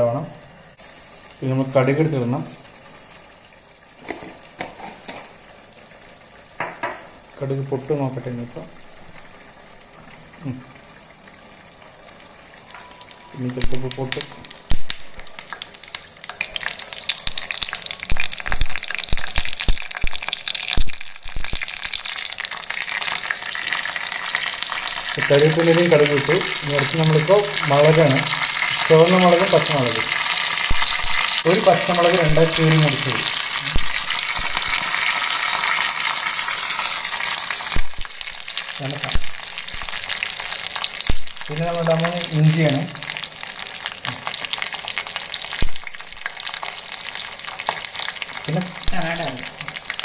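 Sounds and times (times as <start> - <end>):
seeds sizzling and popping in oil: 0.7 - 50.0
sharp knocks in a pan: 4.1 - 5.3, 6.6 - 7.2.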